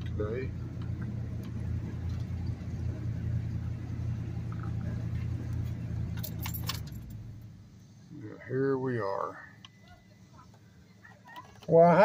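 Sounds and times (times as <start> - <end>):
truck engine rumble: 0.0 - 11.7
sharp clicks and jangles: 6.1 - 7.2.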